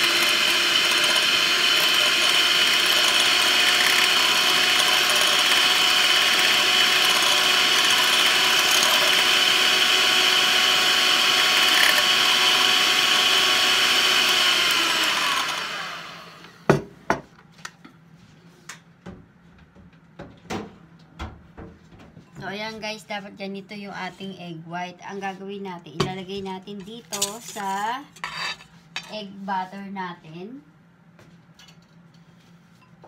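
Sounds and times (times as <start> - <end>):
electric mixer whining: 0.0 - 16.7.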